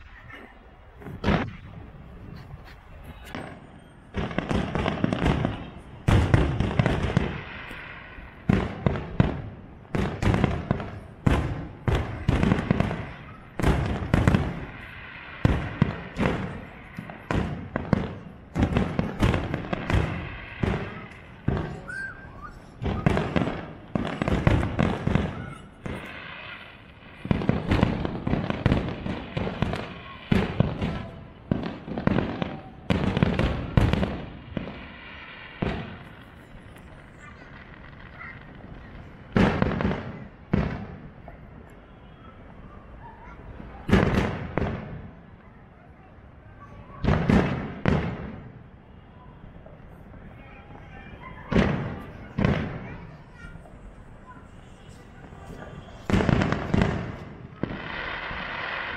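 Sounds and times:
fireworks bursting with bangs: 0.0s - 58.9s.

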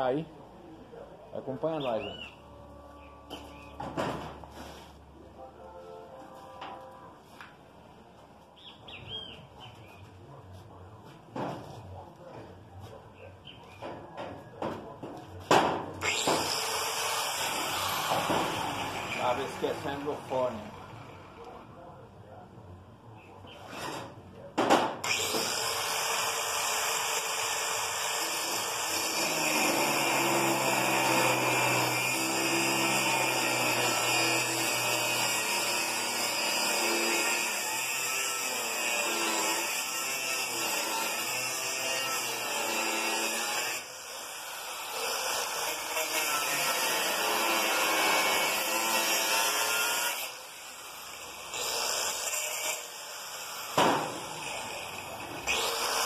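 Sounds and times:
angle grinder cutting steel: 16.0s - 21.3s, 25.0s - 56.0s.

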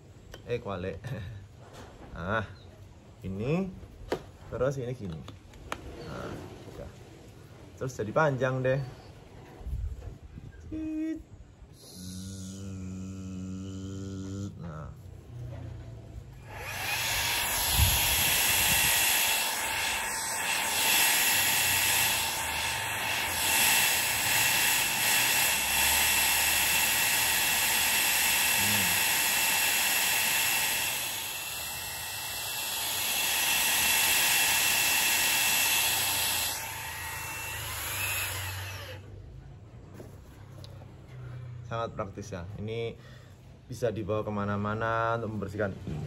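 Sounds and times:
handheld vacuum motor whine: 16.3s - 39.1s.

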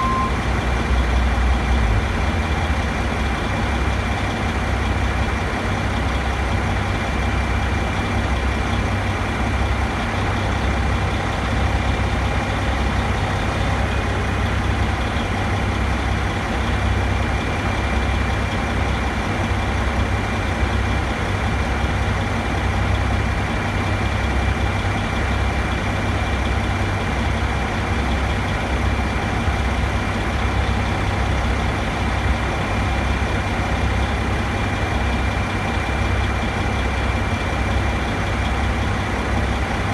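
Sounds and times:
thin high tone: 0.0s - 0.4s
engine idling rumble: 0.0s - 39.9s.

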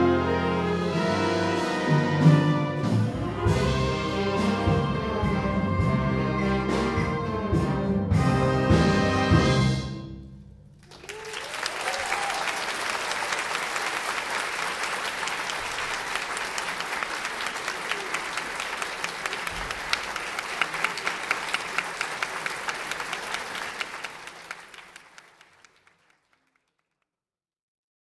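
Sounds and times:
audience applauding: 10.8s - 27.0s.

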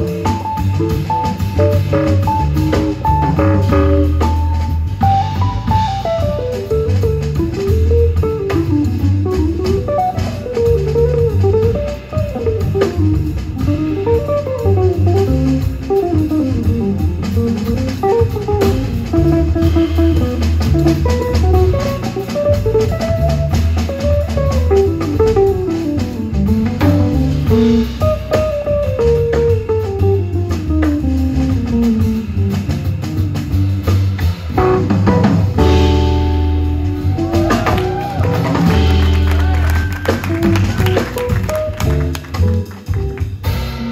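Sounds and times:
drum kit with cymbals: 0.0s - 43.9s
walking upright bass: 0.0s - 43.9s
electric guitar melodic runs: 34.6s - 43.6s.

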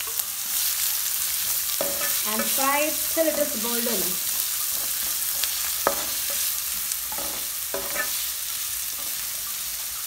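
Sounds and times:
onions sizzling in a pan: 0.0s - 10.0s
wooden spatula scraping pan: 7.1s - 8.2s.

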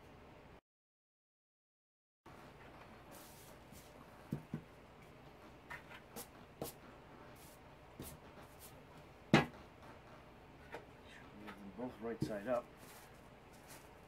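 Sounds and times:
soft rustling: 11.4s - 14.0s
light taps and knocks: 11.5s - 12.6s.

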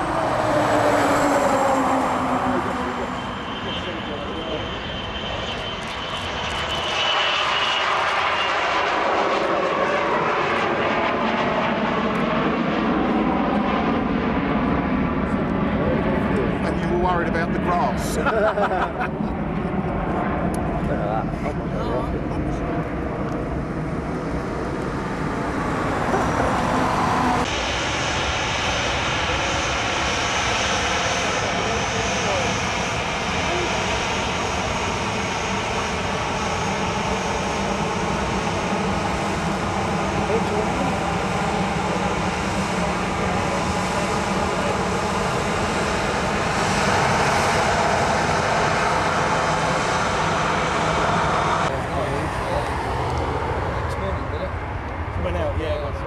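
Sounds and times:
jet taking off: 0.0s - 56.0s
faint high whine: 2.6s - 7.8s.

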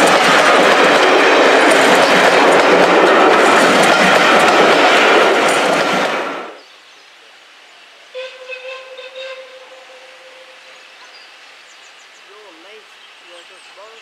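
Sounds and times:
railway coaches rolling past: 0.0s - 6.7s, 8.1s - 14.0s
steam locomotive whistle: 8.1s - 10.9s.

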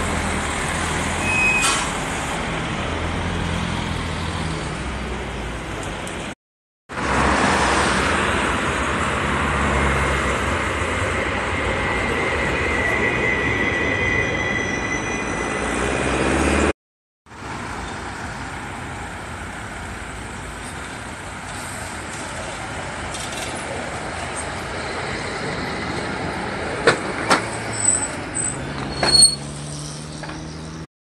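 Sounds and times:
high wheel squeal: 1.1s - 2.0s, 11.0s - 16.6s, 24.2s - 26.4s, 27.4s - 30.8s
tram rolling past on rails: 7.0s - 16.7s, 17.5s - 29.0s
faint tram approaching: 7.8s - 16.7s, 17.4s - 28.9s.

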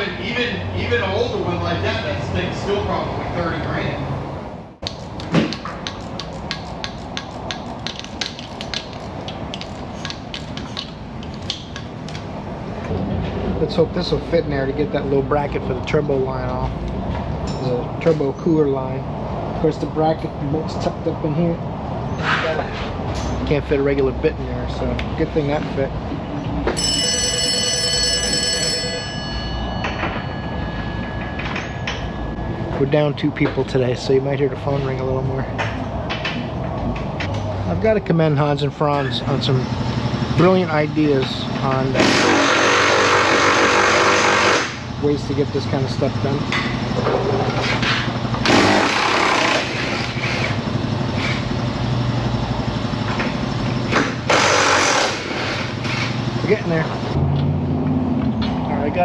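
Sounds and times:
telephone ringing: 26.8s - 32.5s.

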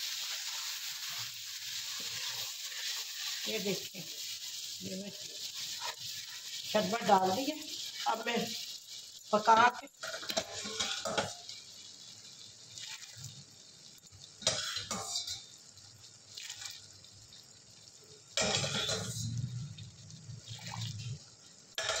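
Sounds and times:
syrup pouring and splashing: 11.4s - 14.4s, 15.4s - 18.4s, 19.2s - 21.8s.

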